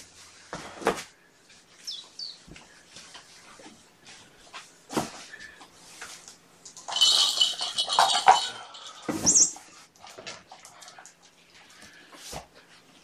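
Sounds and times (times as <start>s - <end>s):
plastic toy rattling: 6.7s - 9.4s.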